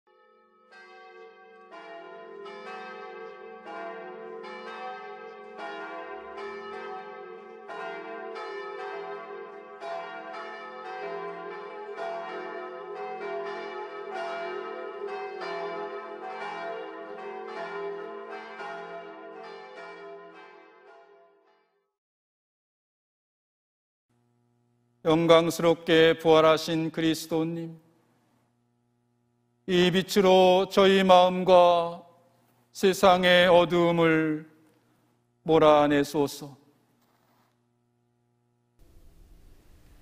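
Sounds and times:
church bells ringing: 0.1s - 21.9s, 25.1s - 27.8s, 29.7s - 32.1s, 32.8s - 34.6s, 35.5s - 36.7s.

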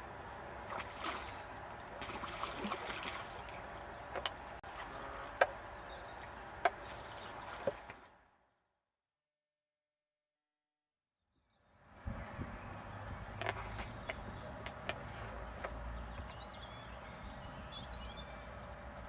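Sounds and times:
fish splashing in water: 0.4s - 8.1s.

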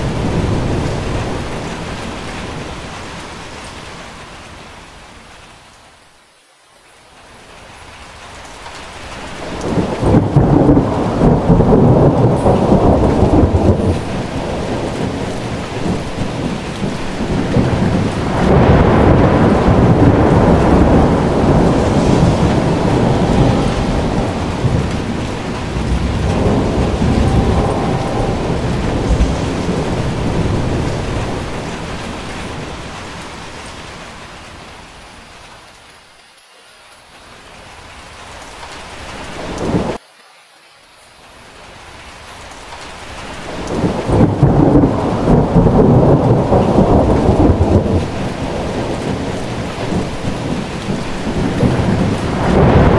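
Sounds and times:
heavy rain pouring: 0.0s - 52.9s
thunder rolling: 9.4s - 33.5s, 43.5s - 52.9s.

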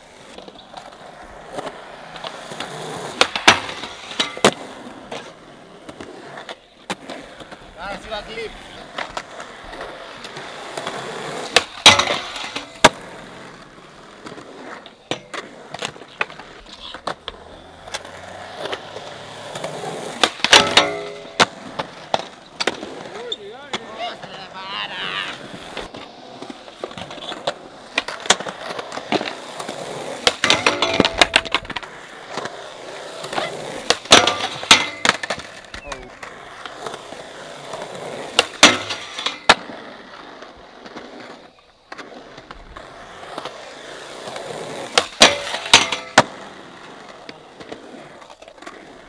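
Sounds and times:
skateboard wheels rolling on concrete: 0.0s - 49.0s
skateboard deck clacking on ground: 0.2s - 49.0s
board impacts: 33.9s - 35.4s.

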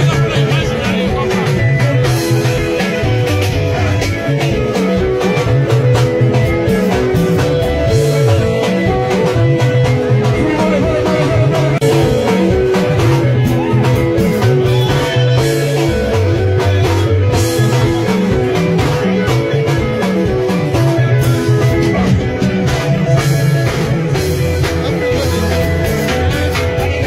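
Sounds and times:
bass line: 0.0s - 27.0s
electric guitar: 0.0s - 27.0s
person singing: 8.0s - 19.9s.

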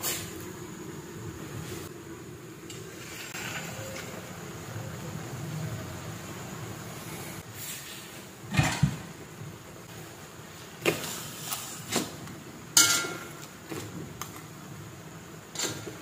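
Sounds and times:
kitchen knocks and clinks: 8.5s - 9.1s, 12.8s - 14.3s.

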